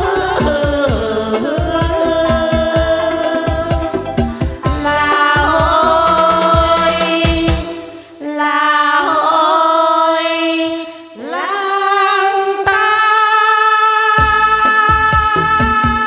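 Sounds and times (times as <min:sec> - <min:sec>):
percussion beat: 0:00.0 - 0:07.9
women singing folk song: 0:00.0 - 0:16.0.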